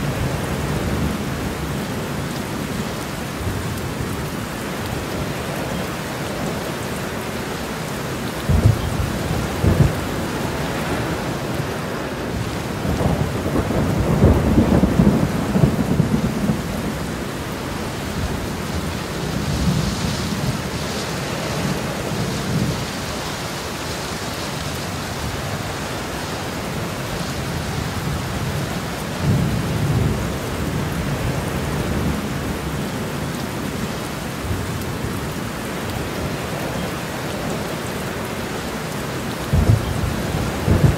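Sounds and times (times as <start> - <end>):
steady rain: 0.0 - 40.9
thunder claps and rumbles: 8.4 - 20.8, 27.4 - 33.7, 39.4 - 40.9.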